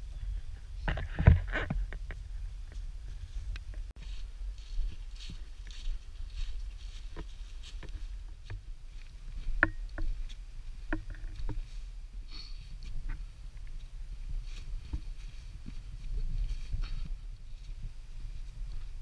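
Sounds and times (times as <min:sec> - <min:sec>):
low rumble of camera movement: 0:00.0 - 0:19.0
footsteps crunching dry leaves: 0:03.2 - 0:09.5.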